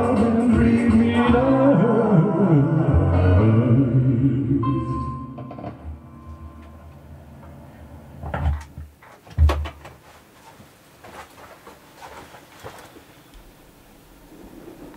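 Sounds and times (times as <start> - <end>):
handling knocks: 8.2 - 13.0.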